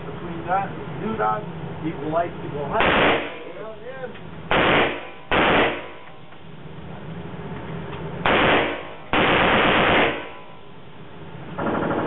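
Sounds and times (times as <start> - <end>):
gunshots indoors: 2.8 - 3.5, 4.5 - 6.2, 8.2 - 10.7, 11.6 - 12.0.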